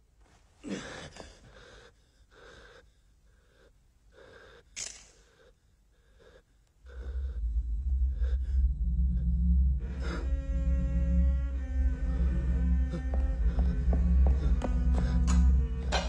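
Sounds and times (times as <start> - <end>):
man breathing hard: 0.6 - 10.5
deep music drone: 6.8 - 16.0.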